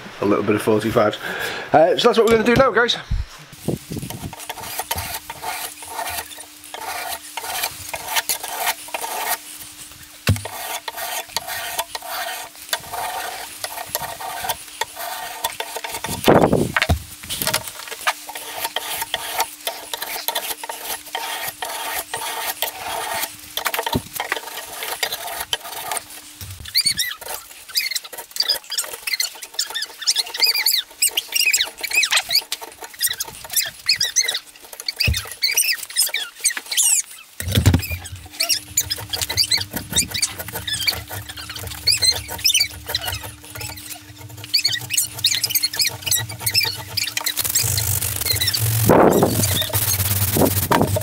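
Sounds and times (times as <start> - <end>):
hand file rasping on wood: 4.1 - 9.5, 10.3 - 16.3, 18.0 - 26.2, 26.8 - 36.7, 37.8 - 51.0
high squeaks: 26.6 - 51.0.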